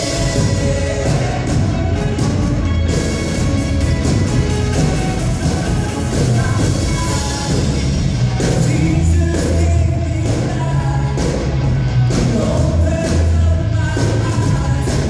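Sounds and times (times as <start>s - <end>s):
people singing: 0.0s - 2.3s, 5.2s - 11.3s
bass guitar: 0.0s - 15.0s
drum kit: 0.0s - 15.0s
electric guitars: 0.0s - 15.0s.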